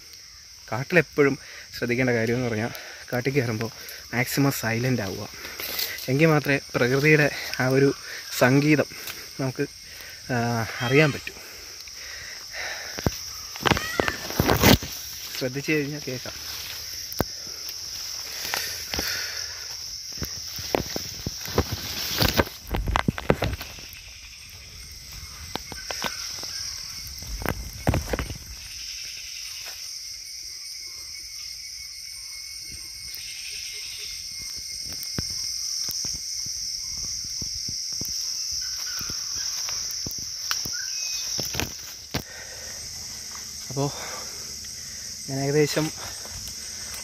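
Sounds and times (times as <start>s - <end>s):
forest insects droning: 0.0s - 47.0s
footsteps through wet undergrowth: 5.0s - 10.1s, 11.0s - 29.9s, 36.2s - 47.0s.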